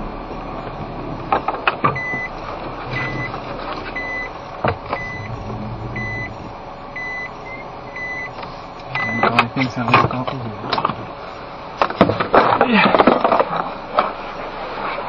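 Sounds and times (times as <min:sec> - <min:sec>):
car engine and tyre noise: 0:00.0 - 0:15.0
reverse warning beeper: 0:01.9 - 0:09.8.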